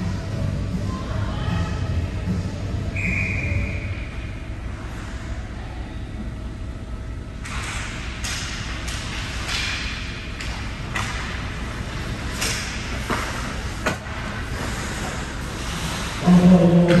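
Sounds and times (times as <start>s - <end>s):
hockey sticks and puck clacking: 7.4s - 16.2s
skates scraping on ice: 10.8s - 16.4s.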